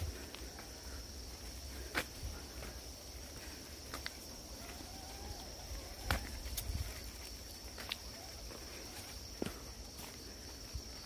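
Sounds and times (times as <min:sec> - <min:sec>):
low rumble of wind: 0:00.0 - 0:07.9
footsteps on dirt trail: 0:00.0 - 0:11.0
high-pitched insect drone: 0:00.0 - 0:11.0.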